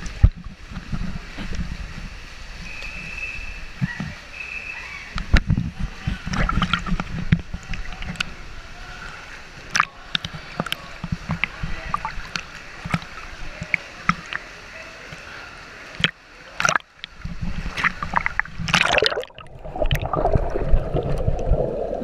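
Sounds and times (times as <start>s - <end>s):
water splashes: 0.0s - 22.0s
sea water sloshing and lapping: 16.0s - 22.0s.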